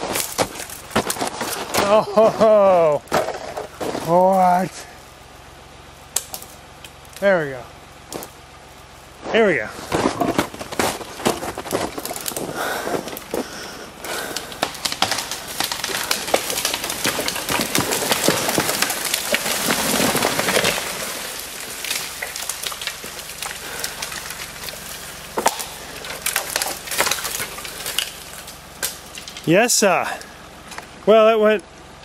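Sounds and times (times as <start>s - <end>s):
tree crashing through branches: 0.0s - 4.8s, 9.7s - 30.9s
wood cracking and splintering: 0.0s - 5.1s, 6.1s - 7.3s, 8.0s - 8.4s, 9.7s - 31.1s.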